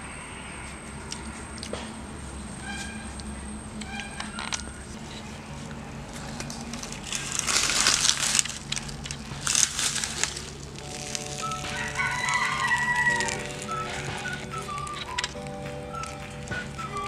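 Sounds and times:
banana leaf crinkling: 0:04.2 - 0:17.0.

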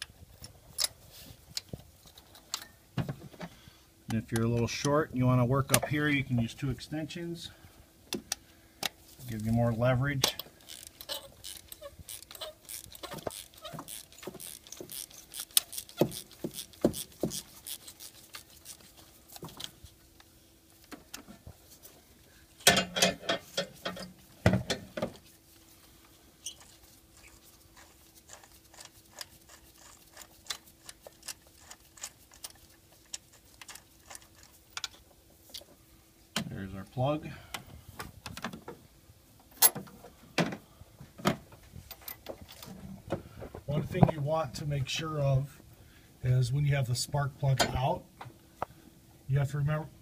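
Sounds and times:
faint steady hum: 0:00.0 - 0:50.0
ratchet clicking: 0:10.6 - 0:18.8
tool knocking and rattling: 0:10.7 - 0:17.8.

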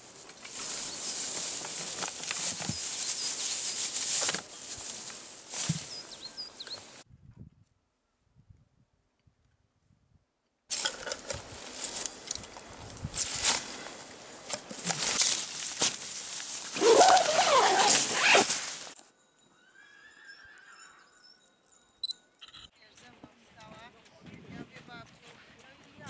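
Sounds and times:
clothing and gear rustling: 0:00.0 - 0:07.0, 0:10.7 - 0:19.0
wavering squeaky sound: 0:19.4 - 0:22.7.

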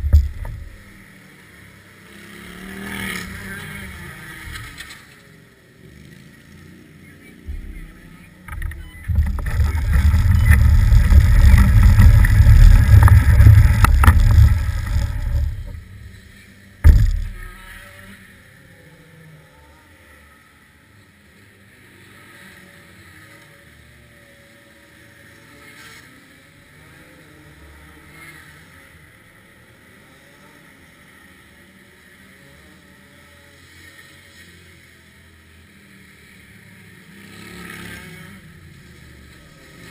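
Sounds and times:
loud low rumbling: 0:00.0 - 0:01.0, 0:07.5 - 0:17.8
faint wind: 0:00.0 - 0:39.9
sharp knock: 0:16.8 - 0:17.7.

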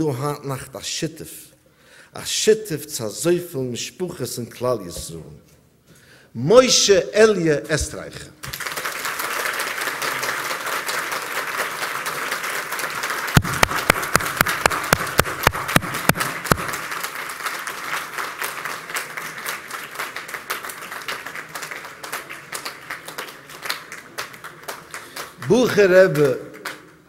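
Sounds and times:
crowd applauding: 0:08.4 - 0:27.0
loud sharp knocks: 0:13.4 - 0:16.8.

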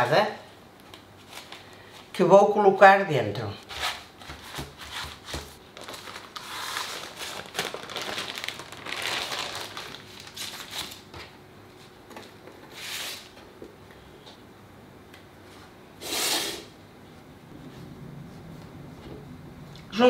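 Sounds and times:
paper crinkling and rustling: 0:04.5 - 0:11.3.

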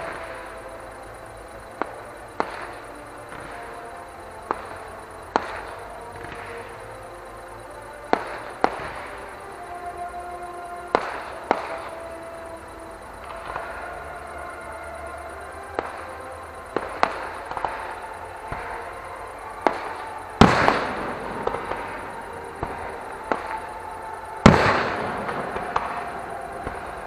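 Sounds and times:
fireworks bangs: 0:00.0 - 0:27.0
big firework booms: 0:19.6 - 0:23.6, 0:24.4 - 0:27.0.

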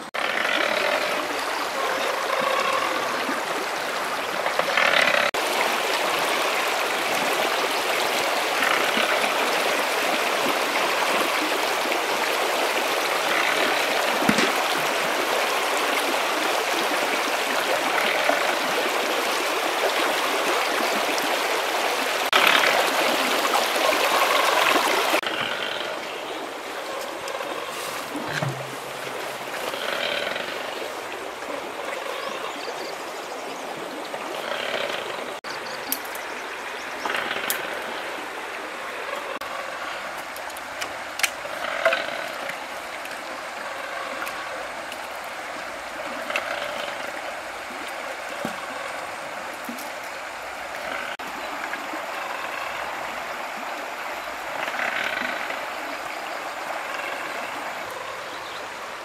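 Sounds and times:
stream running over rocks: 0:00.0 - 0:59.0.

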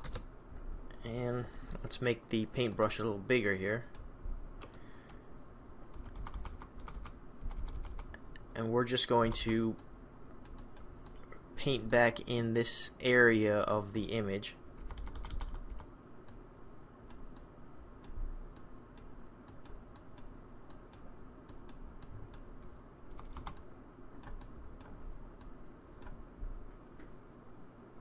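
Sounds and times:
keyboard keys clicking: 0:00.0 - 0:00.3, 0:05.9 - 0:08.2, 0:14.8 - 0:15.9, 0:23.1 - 0:23.6
faint low hum: 0:00.0 - 0:28.0.

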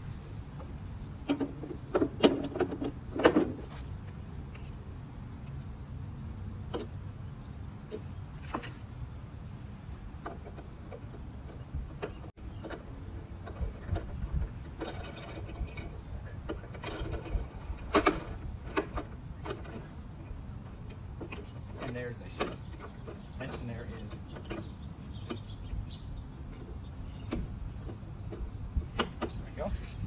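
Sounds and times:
metal hardware clicking and clattering: 0:01.3 - 0:03.6, 0:10.2 - 0:25.5.

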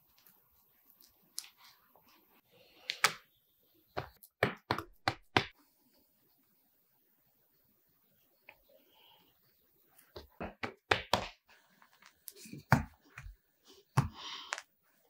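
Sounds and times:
hands rubbing dough: 0:03.9 - 0:05.6
dough tapping and thumping on board: 0:04.0 - 0:05.6, 0:10.2 - 0:11.4.

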